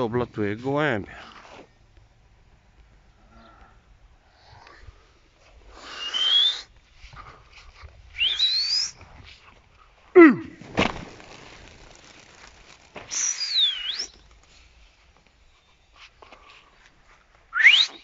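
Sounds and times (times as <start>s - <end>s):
person whistling: 6.0s - 6.7s, 8.2s - 9.0s, 13.1s - 14.1s, 17.5s - 18.0s.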